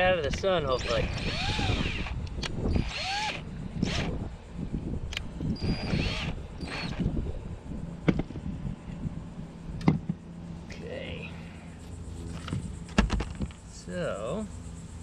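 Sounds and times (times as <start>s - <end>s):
sharp clicks: 0.2s - 4.2s
cordless drill motor whine: 0.4s - 7.3s.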